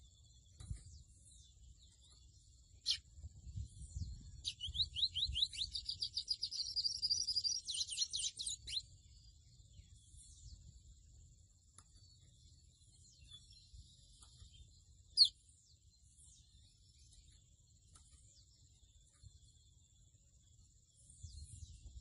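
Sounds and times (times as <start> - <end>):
bird singing whistles and trill: 2.8 - 10.7, 12.6 - 15.5.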